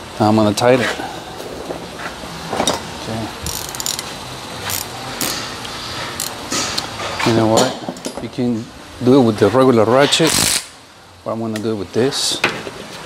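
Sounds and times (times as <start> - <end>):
hand ratchet clicking: 3.5 - 4.1, 4.7 - 5.4, 6.2 - 6.4
metallic tool handling clicks: 3.5 - 4.1.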